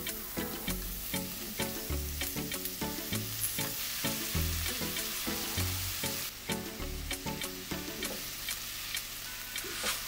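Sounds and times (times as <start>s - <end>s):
background music with steady beat: 0.0s - 9.2s
vegetables sizzling in hot oil: 0.0s - 10.0s.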